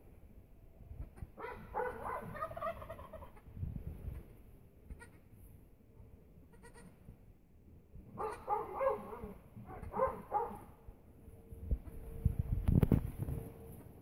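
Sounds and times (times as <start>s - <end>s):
goat bleating: 6.5s - 6.9s.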